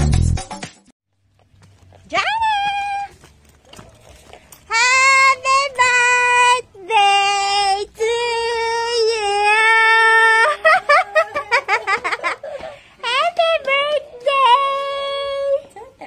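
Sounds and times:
high voice singing: 4.7s - 10.6s.

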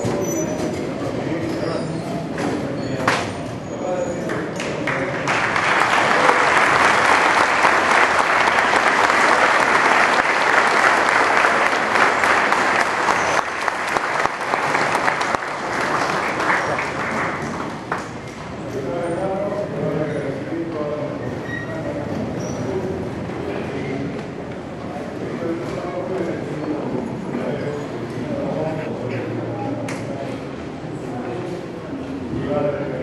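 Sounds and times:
audience applauding: 4.3s - 18.3s.

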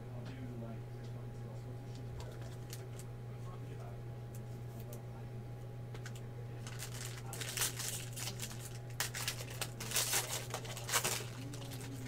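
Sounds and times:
steady low hum: 0.0s - 12.0s
plastic packaging crinkling: 6.0s - 12.0s.

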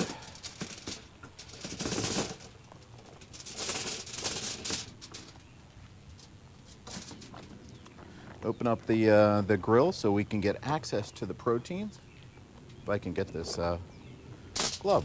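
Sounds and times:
wire grill basket rattling: 0.0s - 5.5s, 6.1s - 7.5s, 14.6s - 15.0s.

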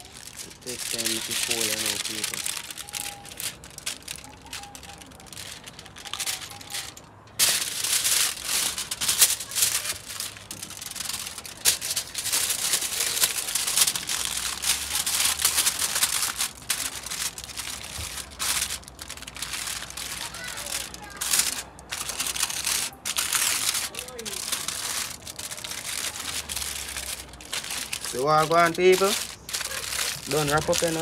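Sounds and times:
aluminium foil crinkling: 0.0s - 31.0s.

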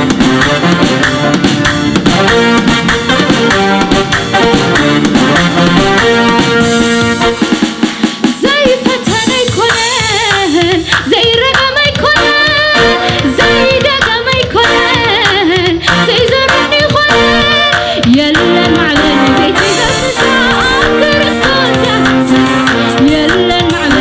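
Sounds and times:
instrumental accompaniment: 0.0s - 24.0s
woman singing gospel song: 8.4s - 24.0s.

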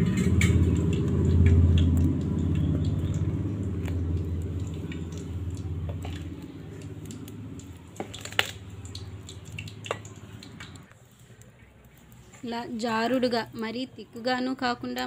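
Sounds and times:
low hum: 0.0s - 10.9s
batter squishing in bowl: 0.6s - 12.5s.

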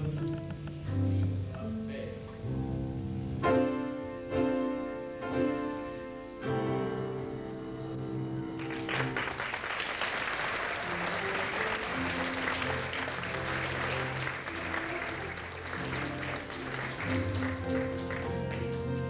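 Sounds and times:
band playing held notes: 0.0s - 19.0s
audience applause: 8.6s - 19.0s.

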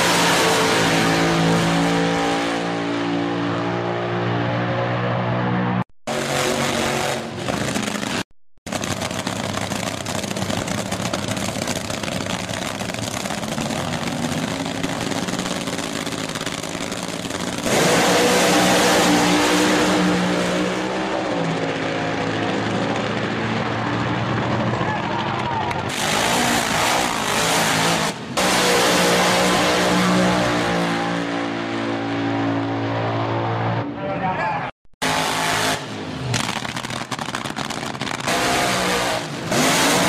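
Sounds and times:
race cars accelerating: 0.0s - 8.2s, 8.9s - 34.3s
drag racing engines revving: 0.0s - 34.4s, 35.0s - 40.0s
engines idling: 7.3s - 18.4s, 21.0s - 26.1s.

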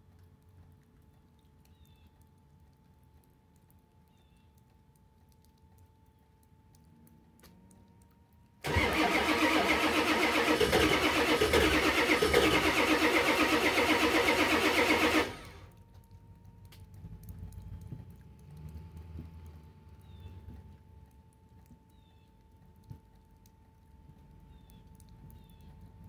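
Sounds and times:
engine low rumble: 5.8s - 26.0s
diesel engine cranking: 8.6s - 15.7s.

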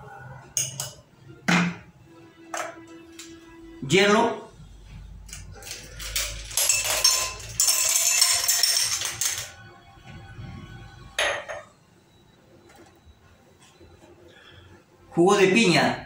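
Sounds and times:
ice cubes clinking in glass: 5.6s - 9.6s.

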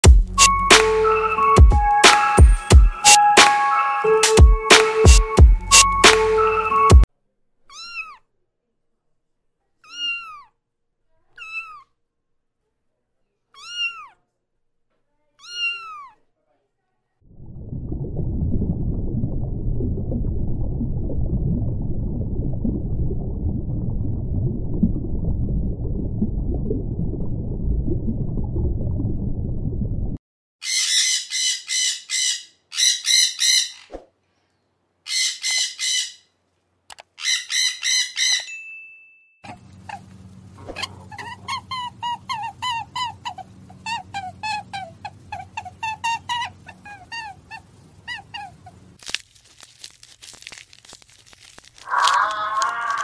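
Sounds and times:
low hum: 17.2s - 30.2s
muffled underwater water noise: 17.2s - 30.2s, 51.0s - 53.0s
shrill bird-like chirps: 30.6s - 34.0s, 35.1s - 36.3s, 37.2s - 38.6s.

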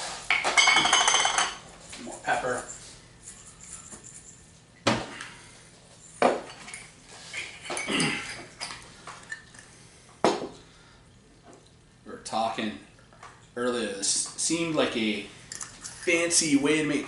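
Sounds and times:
dishes and cutlery clinking: 0.3s - 1.6s.

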